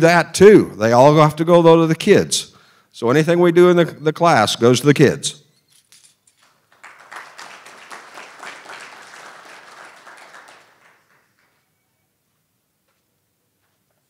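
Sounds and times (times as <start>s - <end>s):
audience applauding: 6.4s - 11.7s.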